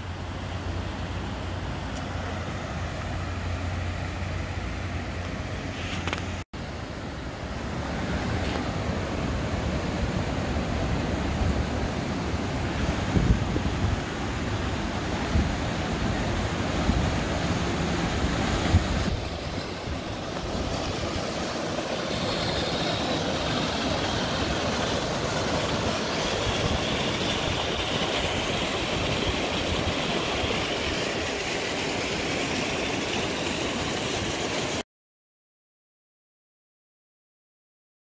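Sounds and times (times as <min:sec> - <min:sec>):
river rushing over falls: 0:00.1 - 0:34.8
wind buffeting microphone: 0:12.7 - 0:30.0.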